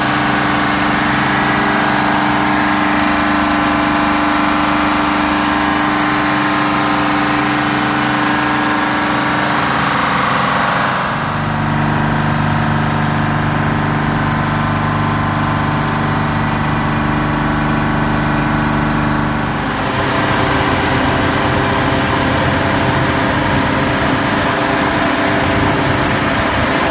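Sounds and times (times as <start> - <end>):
two-stroke diesel generator running: 0.0 - 26.9.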